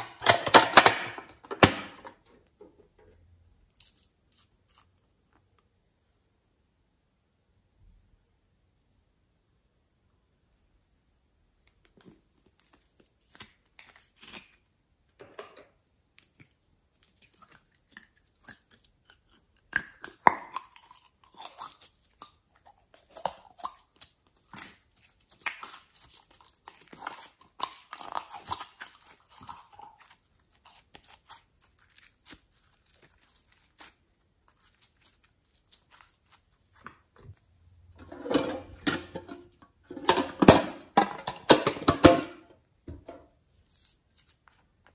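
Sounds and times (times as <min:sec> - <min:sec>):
plastic toys clicking and rustling: 0:00.0 - 0:02.2
tin box rattling and scraping: 0:38.0 - 0:42.2.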